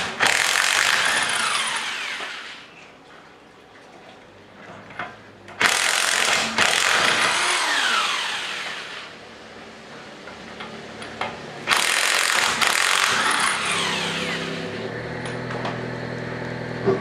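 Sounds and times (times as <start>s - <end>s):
electric impact wrench whirring: 0.0s - 2.7s, 5.6s - 9.2s, 11.7s - 15.5s.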